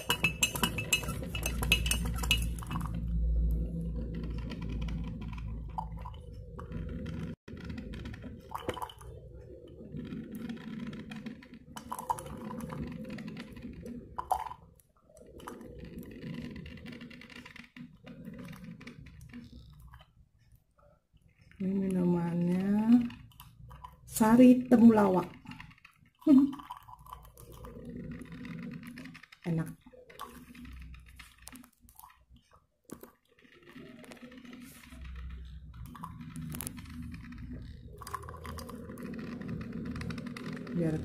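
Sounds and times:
metal spoon clinking in mug: 0.0 - 3.0.

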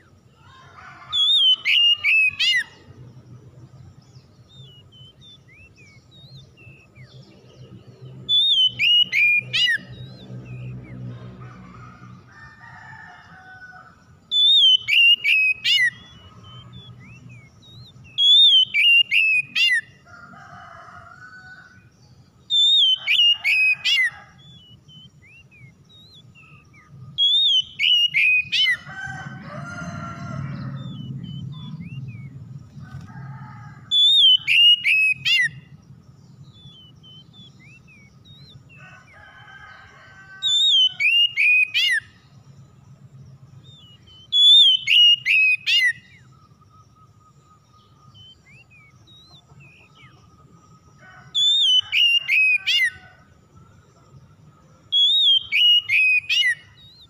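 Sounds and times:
bird whistling song: 1.1 - 2.9, 4.1 - 7.3, 8.2 - 11.1, 14.3 - 20.0, 22.5 - 28.9, 29.8 - 33.0, 33.9 - 35.8, 36.4 - 38.8, 40.4 - 42.3, 43.6 - 50.2, 51.4 - 53.1, 54.9 - 57.0.

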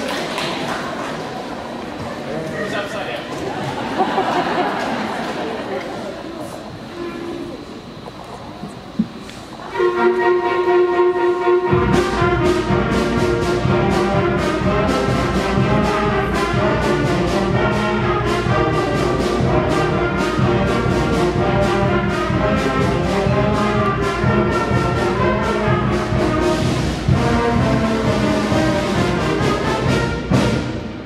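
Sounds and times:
concert band playing: 9.0 - 31.0
trombones: 9.6 - 31.0.

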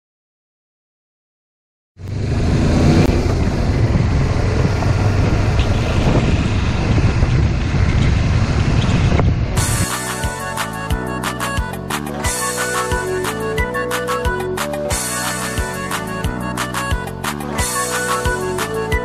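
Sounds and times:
gravel road noise: 2.0 - 19.0
motorcycle engine hum: 2.0 - 19.0
wind rushing: 2.2 - 10.2.

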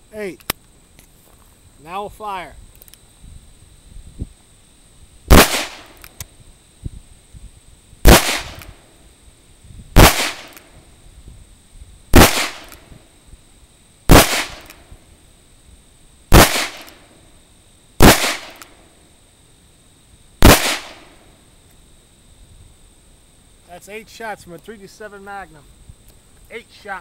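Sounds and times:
revolver gunshots with echo: 5.3 - 6.0, 8.1 - 8.7, 10.0 - 10.7, 12.2 - 12.9, 14.1 - 14.8, 16.3 - 17.0, 18.0 - 18.7, 20.4 - 21.2.

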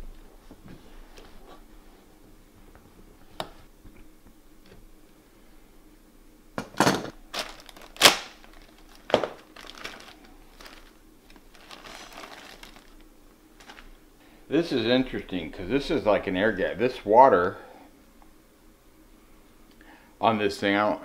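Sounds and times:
plastic bag crinkling: 7.2 - 14.0.

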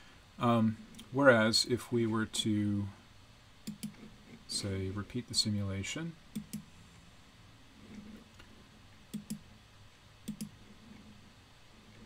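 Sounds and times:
computer mouse clicks: 3.6 - 4.1, 6.3 - 6.7, 9.1 - 9.4, 10.2 - 11.0.

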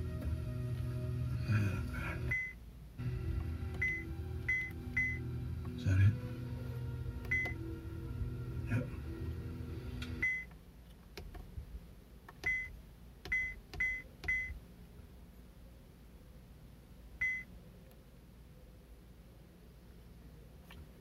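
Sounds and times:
film sound: 3.0 - 10.3.

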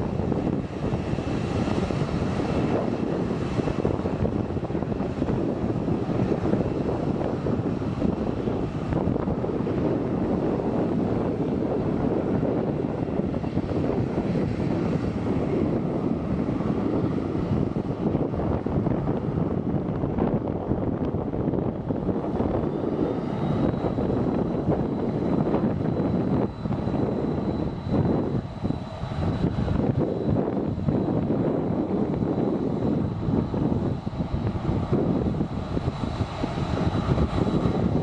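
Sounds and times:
jet engines running: 0.0 - 38.0.

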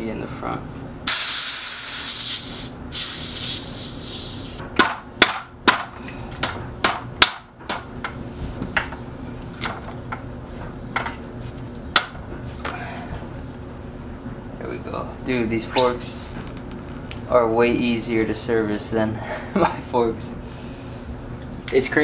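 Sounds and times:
brief hiss: 1.1 - 4.6.

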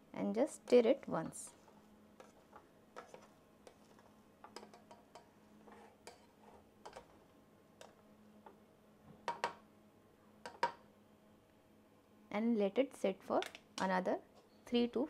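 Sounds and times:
faint steady hum: 0.0 - 15.0
spoon tapping a pot: 9.3 - 9.6, 10.4 - 10.8.

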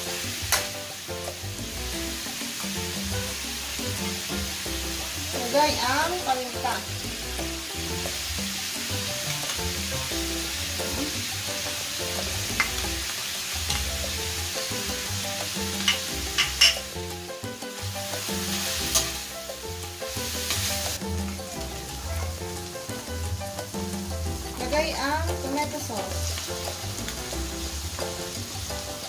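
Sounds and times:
background music with bass: 0.0 - 29.0
meat sizzling in a wok: 0.0 - 29.0.

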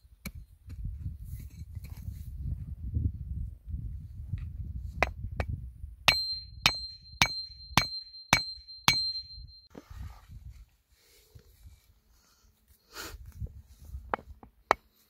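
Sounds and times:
hatchet striking log: 6.1 - 9.2, 14.2 - 14.9.

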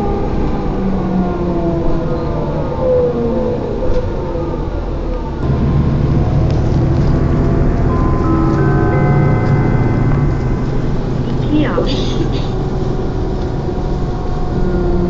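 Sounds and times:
engine and road rumble: 0.0 - 15.0
whining tones gliding down: 5.4 - 15.0.

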